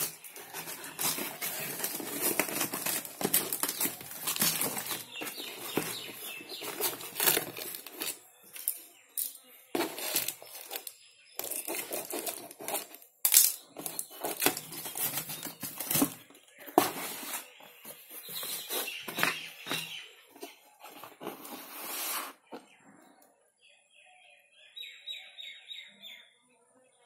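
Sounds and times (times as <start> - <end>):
cardboard flaps rustling: 0.0 - 8.2, 13.8 - 22.3
packing tape tearing: 0.0 - 8.8, 9.8 - 13.0, 13.8 - 16.2.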